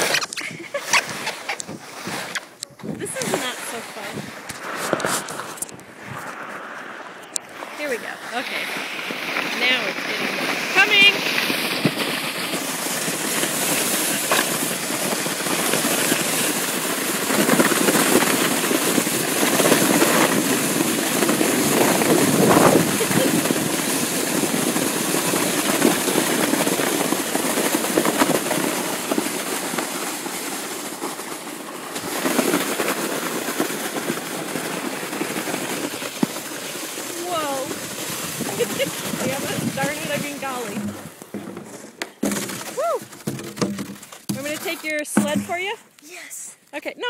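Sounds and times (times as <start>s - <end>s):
wind on microphone: 0.0s - 29.2s, 37.1s - 41.3s
sled scraping over snow: 0.0s - 46.4s.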